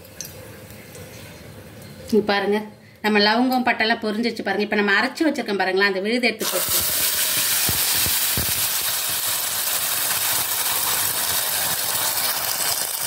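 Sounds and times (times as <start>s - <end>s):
paste sizzling in hot oil: 6.4s - 13.0s.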